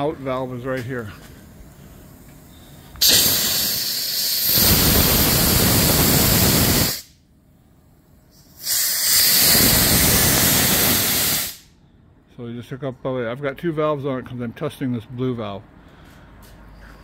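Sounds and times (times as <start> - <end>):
steam hissing from valve: 3.0 - 7.2, 8.3 - 11.7.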